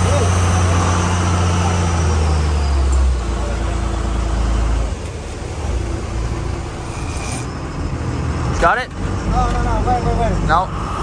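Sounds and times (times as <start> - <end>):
boat engine hum: 0.0 - 11.0
rushing wind: 5.4 - 11.0.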